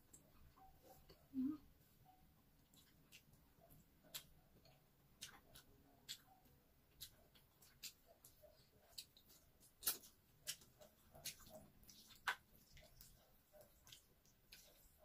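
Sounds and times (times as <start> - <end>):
wet chewing and mouth smacks: 2.5 - 15.0.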